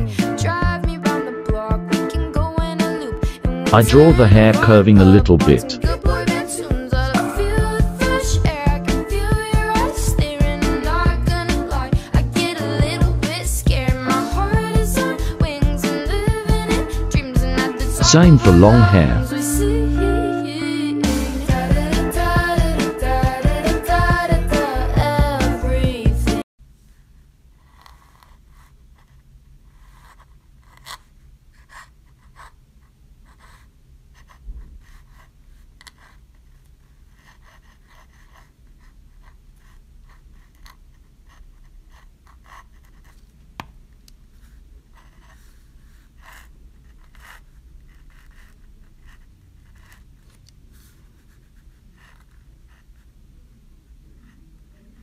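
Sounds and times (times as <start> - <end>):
pen nib scratching paper: 27.6 - 43.2, 44.4 - 53.1.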